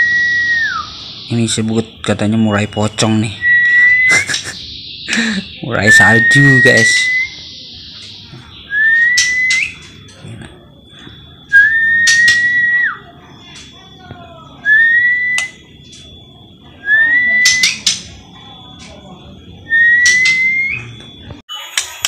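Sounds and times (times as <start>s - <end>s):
loud whistled note: 0.0s - 1.4s
faint high-pitched tone: 4.6s - 22.0s.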